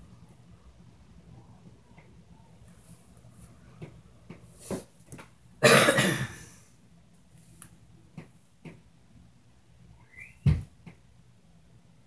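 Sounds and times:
person coughing: 0:05.6 - 0:06.6.

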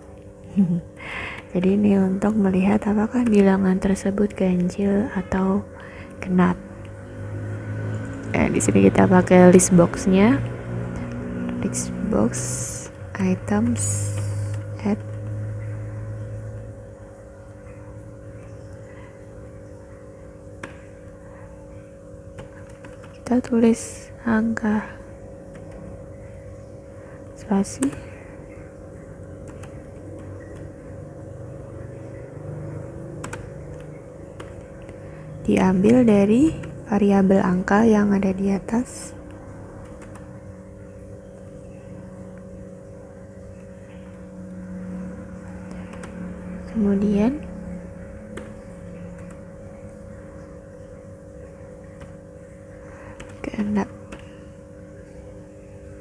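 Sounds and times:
low electrical hum: 0:00.0 - 0:56.0
keyboard keystroke click: 0:33.2 - 0:35.0, 0:48.4 - 0:48.6.

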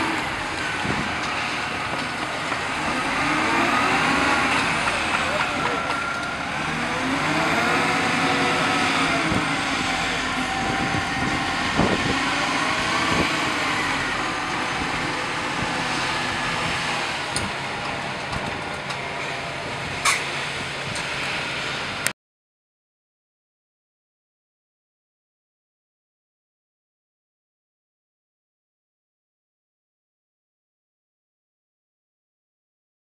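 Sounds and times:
diesel truck engine driving past: 0:00.0 - 0:22.1.

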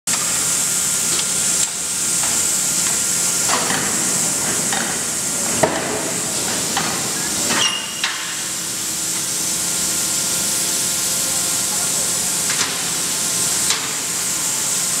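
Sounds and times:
steady high hiss: 0:00.6 - 0:15.0
forging rolls clanking: 0:01.1 - 0:09.7.

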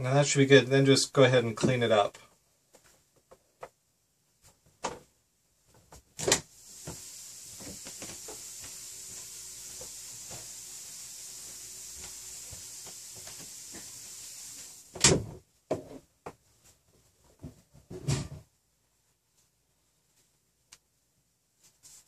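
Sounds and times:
steady high hiss: 0:06.2 - 0:15.4.

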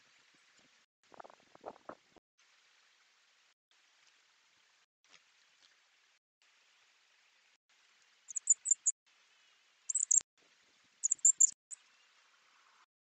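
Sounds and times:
songbird chirping: 0:08.3 - 0:08.9, 0:09.9 - 0:10.2, 0:11.0 - 0:11.6.

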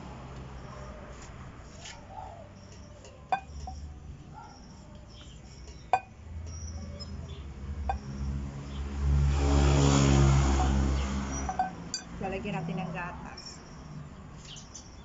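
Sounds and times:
metal spoon clinking on glass: 0:02.6 - 0:04.0, 0:11.5 - 0:12.1.

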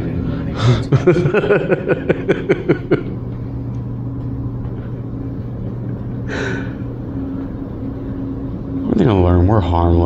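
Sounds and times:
ventilation hum: 0:00.0 - 0:10.0
man laughing: 0:00.6 - 0:03.2.

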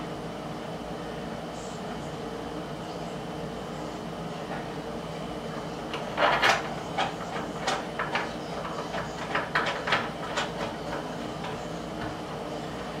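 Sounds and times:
tools tapping on wood: 0:05.9 - 0:12.2.

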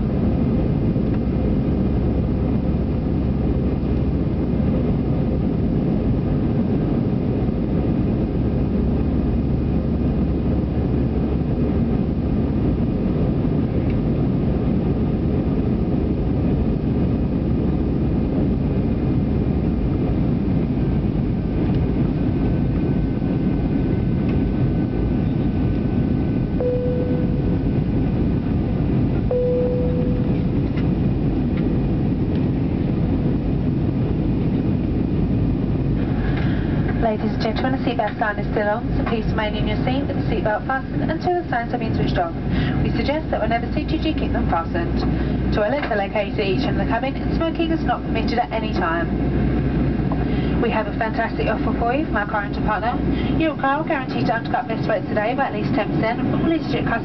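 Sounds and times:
faint steady hum: 0:00.0 - 0:57.0
jet engines rumbling: 0:00.0 - 0:57.0
short cabin tones: 0:26.6 - 0:28.2, 0:29.2 - 0:31.0.

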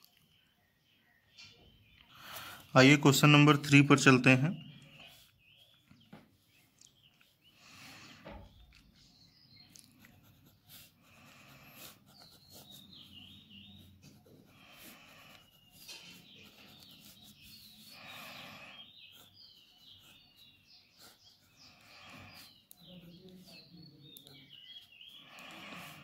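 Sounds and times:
small birds chirping: 0:00.0 - 0:26.0
ballpoint pen scratching paper: 0:09.9 - 0:23.7.

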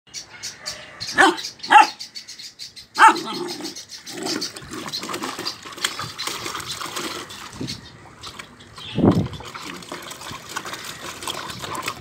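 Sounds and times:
puppy barking: 0:01.2 - 0:02.0, 0:03.0 - 0:03.7
water sloshing in a tub: 0:03.0 - 0:12.0.

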